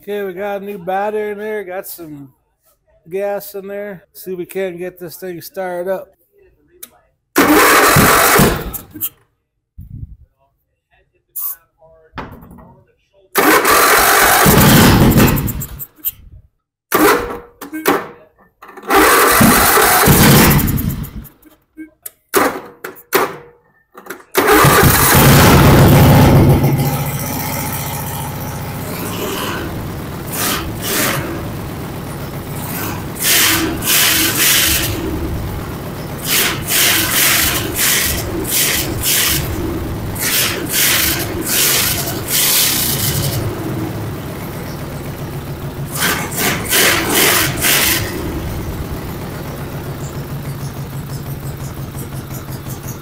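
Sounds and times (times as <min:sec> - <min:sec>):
lawn mower engine starting and running: 0:13.4 - 0:14.6, 0:18.8 - 0:21.0, 0:24.4 - 0:53.0.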